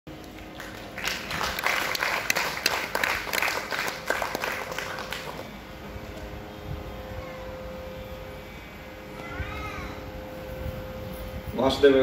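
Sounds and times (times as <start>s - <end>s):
audience applauding: 0.2s - 5.6s.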